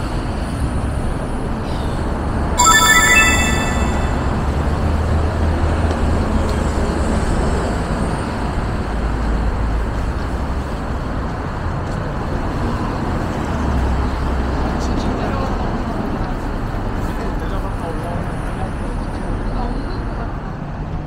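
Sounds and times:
city street traffic: 8.6 - 21.0.

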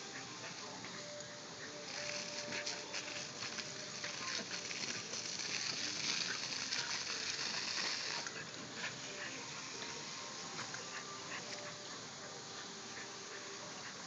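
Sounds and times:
hose spraying water: 0.0 - 14.0
water spattering on grass: 1.8 - 8.4.

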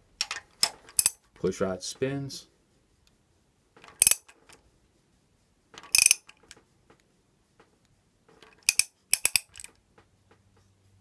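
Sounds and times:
ratchet wrench clicking: 3.9 - 4.3, 5.8 - 6.4, 8.5 - 9.7.

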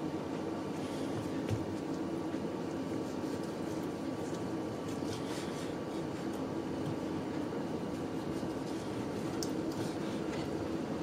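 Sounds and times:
low mechanical hum: 0.0 - 11.0.

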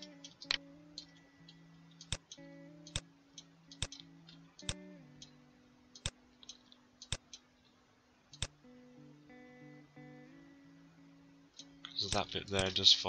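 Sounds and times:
soft guitar music: 0.0 - 7.7, 8.3 - 13.0
mouse and keyboard clicks: 2.0 - 3.0, 3.7 - 5.4, 6.0 - 7.5.

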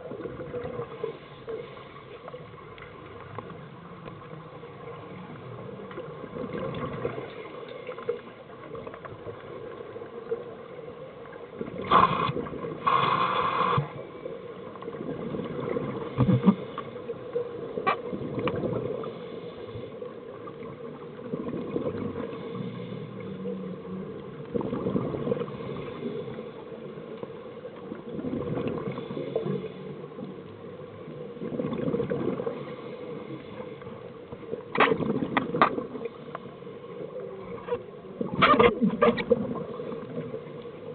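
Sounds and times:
bubbles gurgling underwater: 18.0 - 19.1, 21.1 - 22.4, 24.4 - 25.6, 27.9 - 29.2, 31.4 - 32.6, 35.0 - 36.1, 38.2 - 40.4.

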